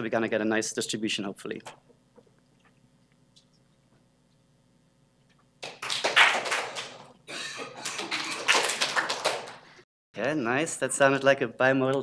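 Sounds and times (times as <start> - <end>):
audience clapping: 5.6 - 9.8.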